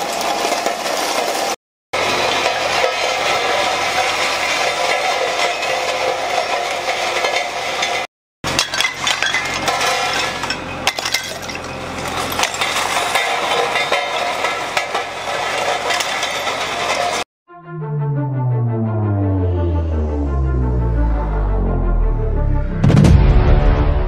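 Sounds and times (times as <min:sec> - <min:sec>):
road roller drum rolling: 0:00.0 - 0:17.3
glass bottles cracking and breaking: 0:02.3 - 0:17.2.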